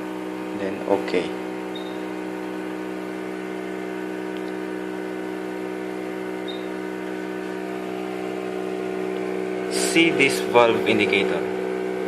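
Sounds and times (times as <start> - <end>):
analyzer mechanical hum: 0.0 - 12.0
short high beep: 1.7 - 2.1.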